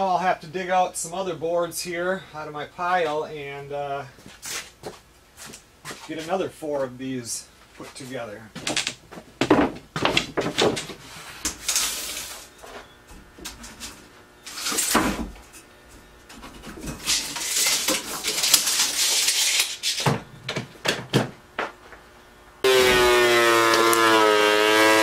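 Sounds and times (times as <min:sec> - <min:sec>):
wooden boards knocking: 0:08.6 - 0:11.0
boards scraping: 0:09.5 - 0:12.9.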